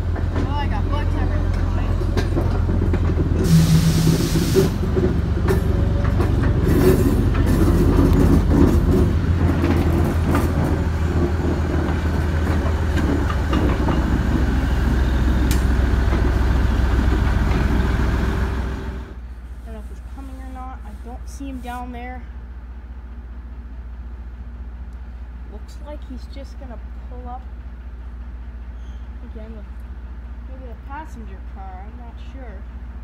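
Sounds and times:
wheels clicking on rails: 0.0s - 19.0s
diesel locomotive engine running: 0.0s - 33.0s.

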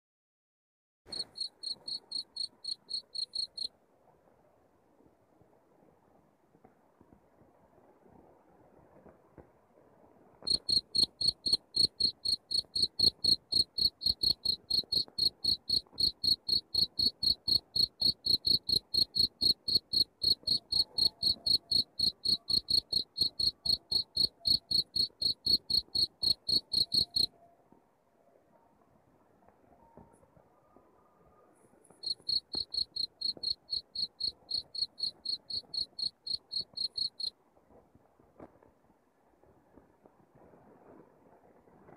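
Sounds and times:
cricket chirping: 1.1s - 3.7s, 10.5s - 27.3s, 31.9s - 37.3s.

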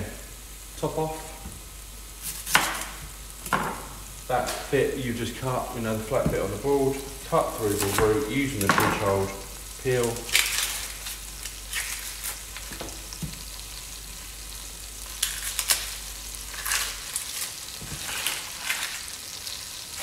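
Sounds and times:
onions sizzling in oil: 0.0s - 20.0s.

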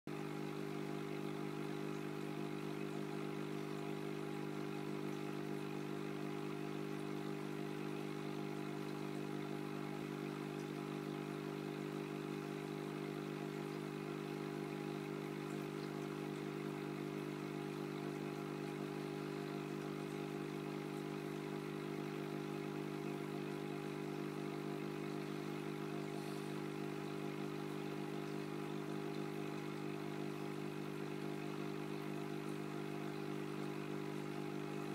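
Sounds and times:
aquarium equipment hum: 0.1s - 34.9s.

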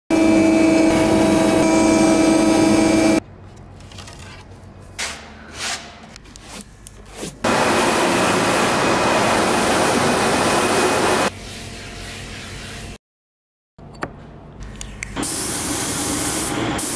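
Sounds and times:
printer carriage machine whine: 0.1s - 3.2s, 7.5s - 11.3s.

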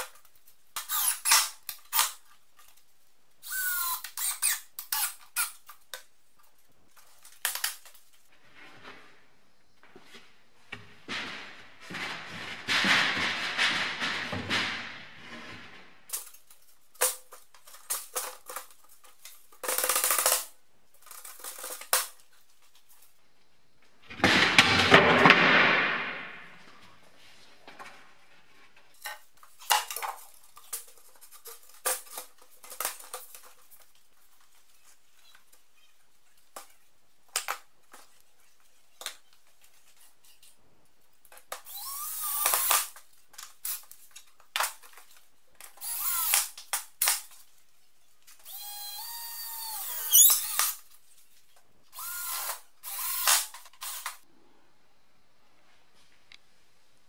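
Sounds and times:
cordless drill spinning: 0.8s - 2.1s, 3.4s - 5.2s, 41.6s - 43.0s, 45.7s - 46.6s, 48.4s - 50.8s, 51.9s - 54.2s
wooden boards knocking: 10.8s - 15.8s.

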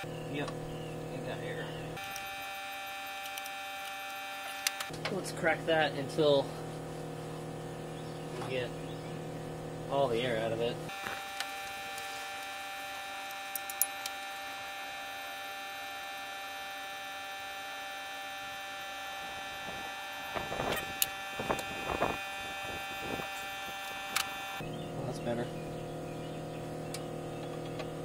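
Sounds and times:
electric fuel pump humming: 0.0s - 28.0s.

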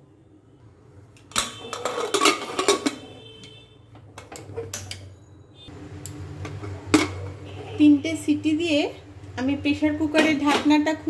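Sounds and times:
metal lid clattering and scraping: 1.3s - 3.2s, 4.1s - 5.0s, 6.5s - 7.7s.

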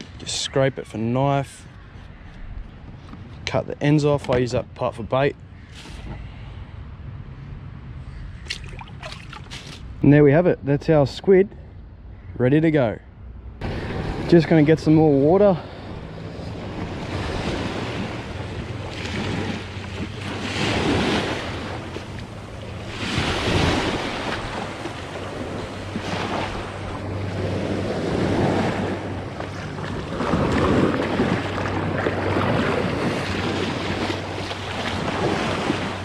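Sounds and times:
small waves on a sandy beach: 13.6s - 36.0s
wind buffeting the microphone: 13.6s - 36.0s.

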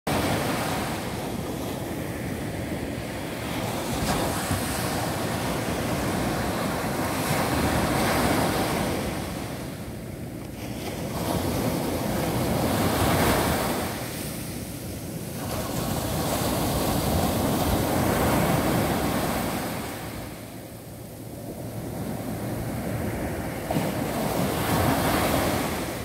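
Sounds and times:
small waves washing on sand: 10.5s - 26.0s.

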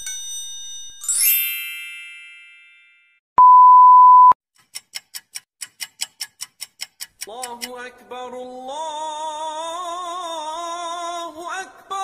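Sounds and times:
sparkling glittery chime: 0.0s - 3.1s
ringing bell chime: 0.0s - 3.2s
electronic beep: 3.4s - 4.4s.

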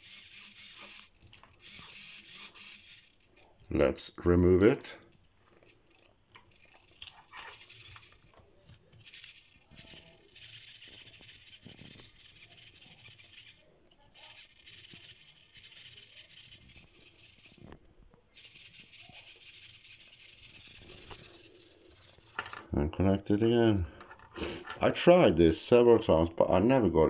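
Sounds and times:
servo motor buzzing and chattering: 0.0s - 3.6s, 5.9s - 22.6s.

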